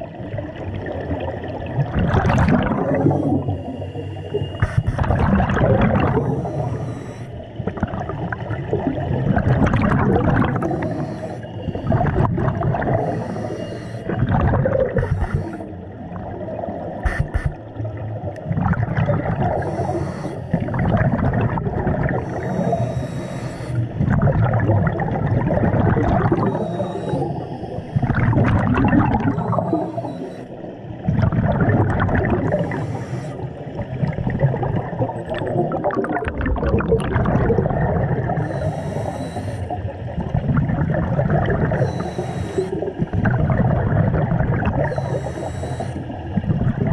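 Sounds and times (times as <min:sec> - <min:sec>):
bubbling exhale: 0:01.8 - 0:16.5, 0:18.4 - 0:46.9
hissing regulator inhale: 0:02.8 - 0:05.2, 0:05.9 - 0:07.6, 0:10.4 - 0:15.9, 0:19.4 - 0:24.2, 0:26.2 - 0:28.3, 0:29.1 - 0:30.8, 0:32.4 - 0:33.9, 0:38.3 - 0:40.0, 0:41.6 - 0:43.1, 0:44.8 - 0:46.4.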